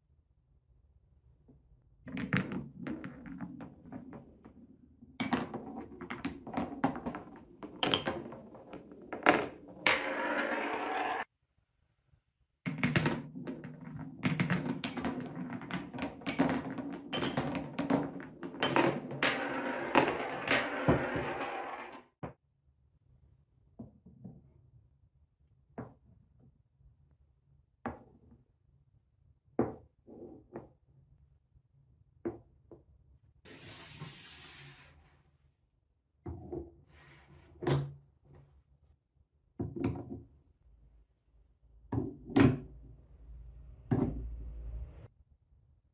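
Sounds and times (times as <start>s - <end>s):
marble rolling on wood: 2.6s - 11.3s, 13.2s - 22.1s
wooden blocks knocking: 12.7s - 22.0s.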